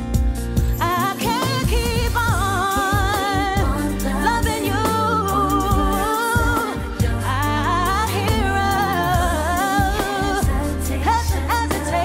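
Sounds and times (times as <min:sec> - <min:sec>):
bass and drums backing track: 0:00.0 - 0:12.0
woman singing: 0:00.8 - 0:12.0.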